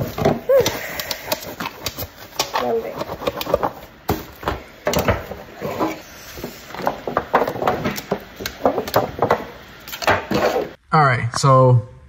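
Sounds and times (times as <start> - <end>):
box and tin knocking and clicking: 0.0 - 5.1.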